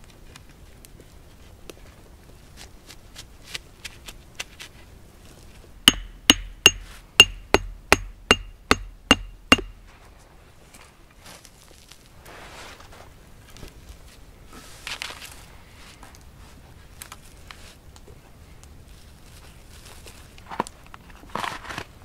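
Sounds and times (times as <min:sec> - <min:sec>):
hammering stake into ground: 0:05.8 - 0:09.9.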